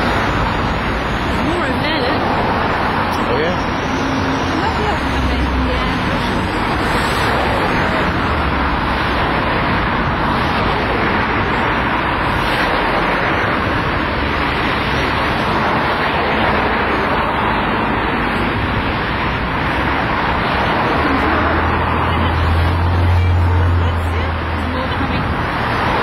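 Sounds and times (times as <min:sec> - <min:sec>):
road traffic rush: 0:00.0 - 0:26.0.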